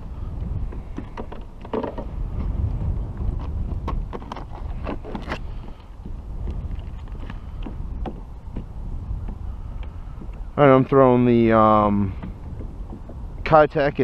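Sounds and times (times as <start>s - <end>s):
wind buffeting microphone: 0.0s - 14.0s
fishing tackle clicks and rattles: 1.0s - 2.1s.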